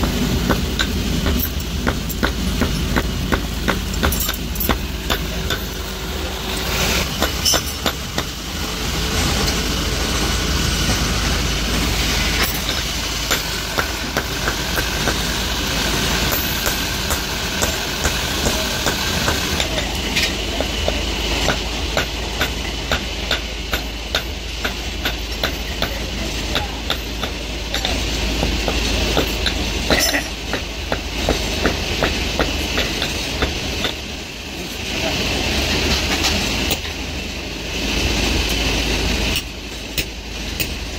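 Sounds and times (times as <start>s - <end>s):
hammer striking steel on anvil: 0.0s - 5.8s, 7.1s - 8.3s, 12.4s - 15.4s, 16.2s - 34.1s
low mechanical hum: 0.0s - 40.9s.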